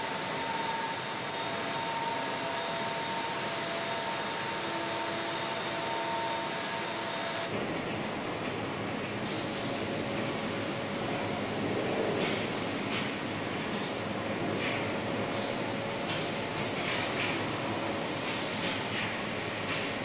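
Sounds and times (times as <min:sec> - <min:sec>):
factory machinery hiss: 0:00.0 - 0:07.5.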